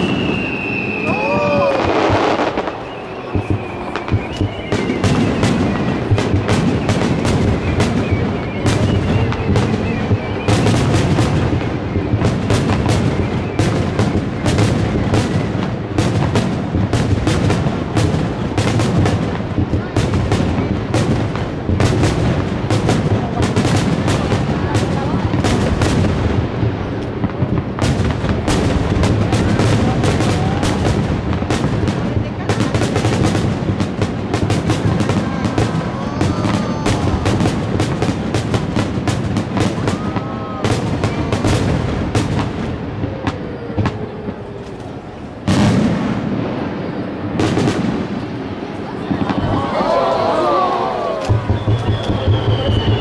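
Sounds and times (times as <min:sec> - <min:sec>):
fireworks bursting with sharp bangs: 0:00.0 - 0:53.0
firework shells bursting: 0:51.2 - 0:53.0.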